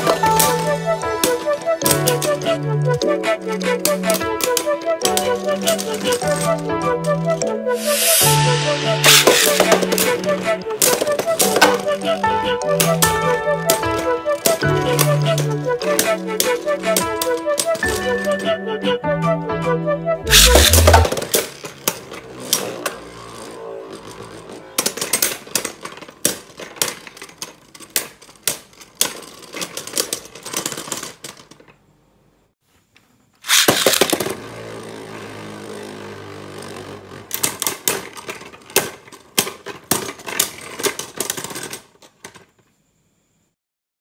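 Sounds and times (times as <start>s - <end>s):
spinning tops clashing: 0.0s - 18.1s, 20.3s - 22.8s, 33.4s - 34.4s
spinning tops whirring: 0.0s - 18.5s, 20.3s - 31.3s, 33.4s - 41.8s
spinning top launch: 7.3s - 11.8s, 20.3s - 24.2s, 33.4s - 34.6s.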